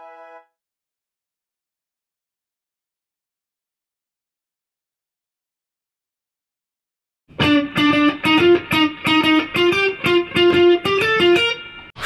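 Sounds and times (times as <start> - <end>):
electric guitar riff: 7.3 - 12.0.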